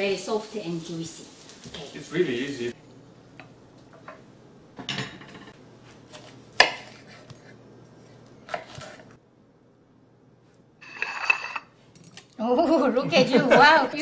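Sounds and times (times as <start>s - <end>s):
kitchenware clattering on stone: 10.8s - 11.7s.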